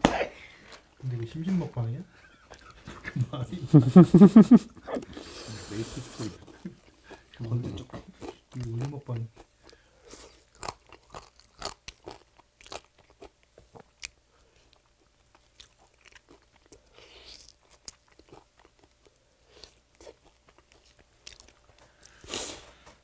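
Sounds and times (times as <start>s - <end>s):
crunching and chewing fried chicken: 6.4s - 22.9s.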